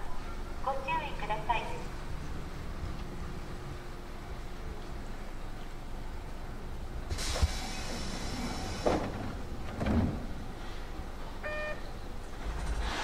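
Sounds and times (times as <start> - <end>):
air hiss of train doors: 7.1 - 9.4, 12.4 - 13.0
short beep: 11.4 - 11.8.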